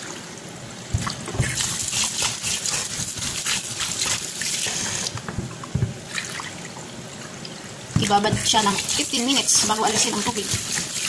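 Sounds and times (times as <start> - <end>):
water splashing into container: 0.9 - 6.8.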